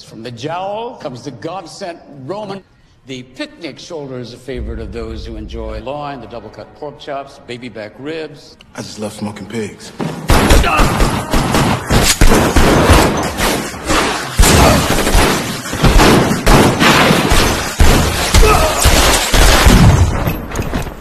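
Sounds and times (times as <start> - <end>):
heavy impacts: 4.5 - 6.0
rapid gunfire: 10.3 - 20.3.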